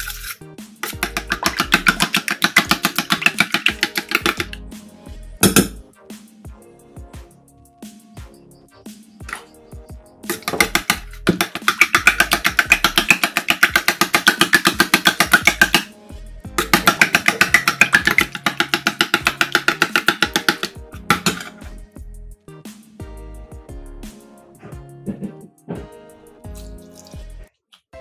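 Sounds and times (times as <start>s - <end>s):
spoon beating eggs in metal bowl: 0.0s - 4.6s, 10.3s - 15.9s, 16.6s - 21.5s
background music: 0.0s - 28.0s.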